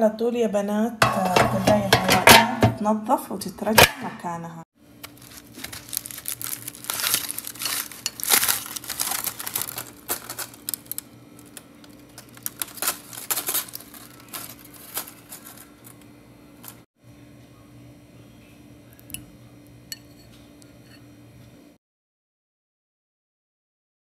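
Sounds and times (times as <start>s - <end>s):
aluminium foil crinkling: 5.0s - 16.8s.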